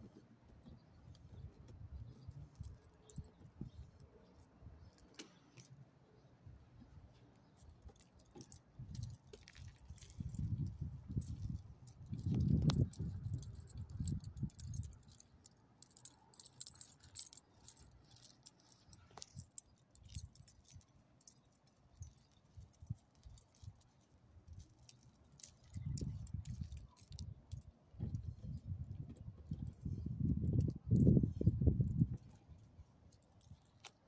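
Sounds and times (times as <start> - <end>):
dog leash jingling and clicking: 1.6 - 5.8, 7.4 - 34.0.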